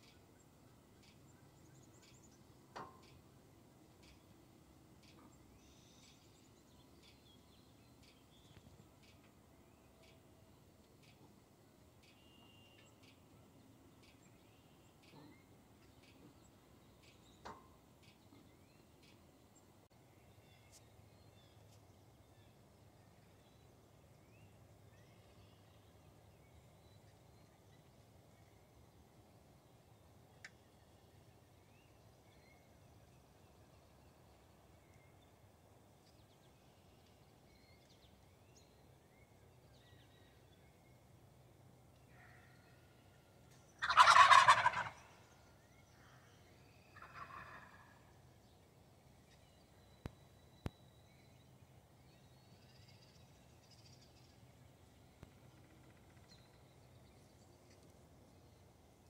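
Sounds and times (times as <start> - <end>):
turkey gobble: 43.8 - 45.2, 47.0 - 48.0.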